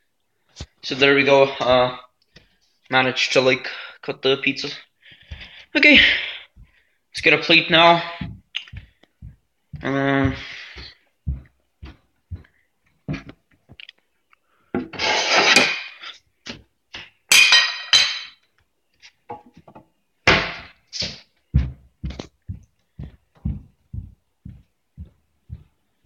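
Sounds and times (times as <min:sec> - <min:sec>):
footsteps: 0:05.1 - 0:13.8, 0:19.3 - 0:26.0
scraping and rubbing: 0:15.0 - 0:16.2.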